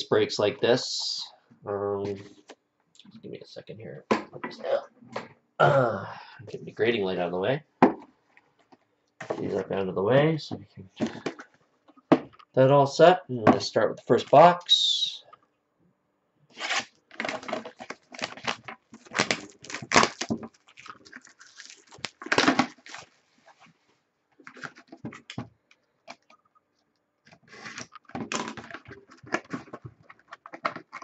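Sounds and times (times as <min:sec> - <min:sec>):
shrink wrap tearing and crinkling: 0:16.5 - 0:23.6.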